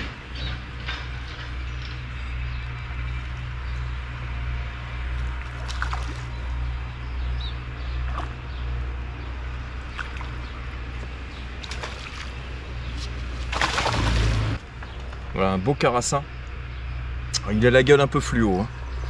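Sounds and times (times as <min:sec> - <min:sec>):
fish splashing in water: 0:05.3 - 0:06.4, 0:09.9 - 0:14.6.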